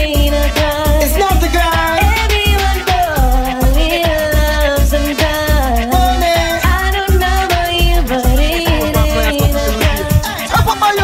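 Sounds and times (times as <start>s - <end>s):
heavy bass drum beat: 0.0s - 11.0s
vocal line: 7.8s - 11.0s.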